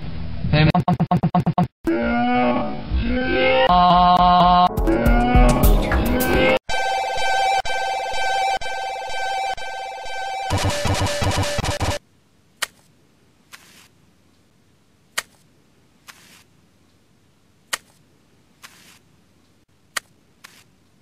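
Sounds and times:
music: 0:04.5 - 0:06.6.

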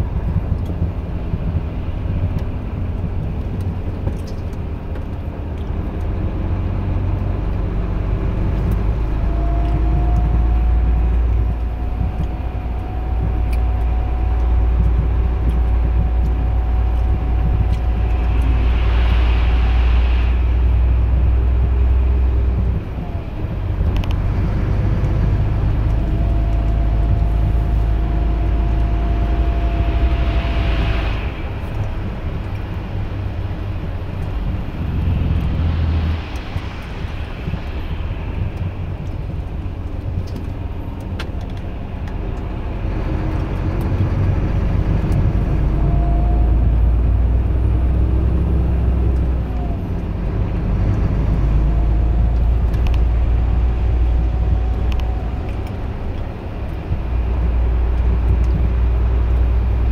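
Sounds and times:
diesel engine drone in cab: 0:00.0 - 0:59.9.

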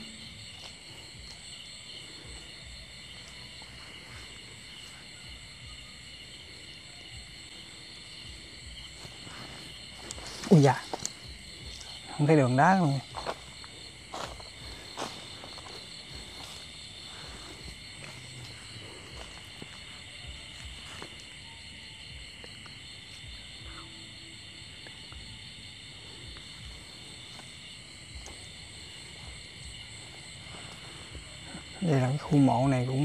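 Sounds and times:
night insects trilling: 0:00.0 - 0:33.0
footsteps on dry leaves: 0:12.8 - 0:21.2.

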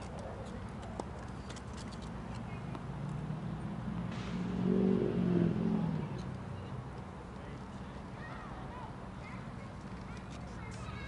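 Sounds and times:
motor vehicle passing by: 0:00.0 - 0:08.0.

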